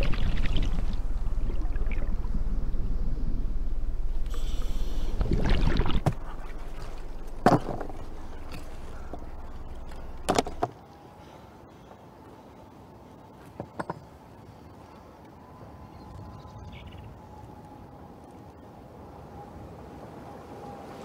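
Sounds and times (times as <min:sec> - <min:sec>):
low underwater rumble: 0:00.0 - 0:10.6
water surface ambience: 0:00.0 - 0:13.3.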